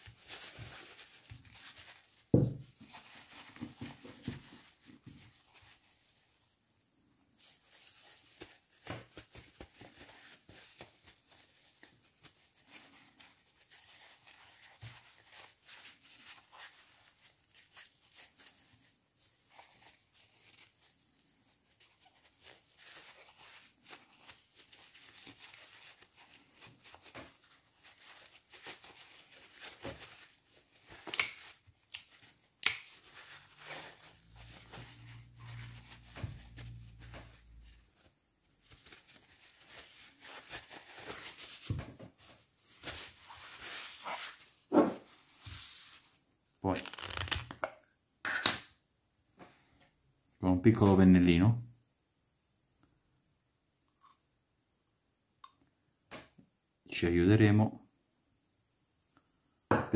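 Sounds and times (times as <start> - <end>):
paper towel rubbing and crinkling: 0.0 - 47.4.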